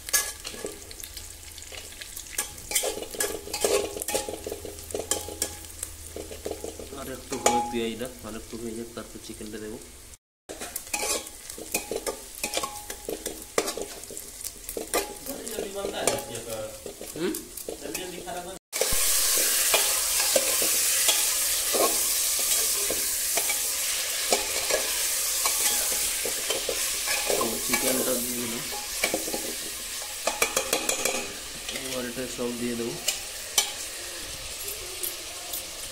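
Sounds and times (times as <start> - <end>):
chicken sizzling in hot oil: 0.0 - 35.9
onions frying in oil: 0.0 - 35.9
spatula scraping metal pot: 10.5 - 18.1.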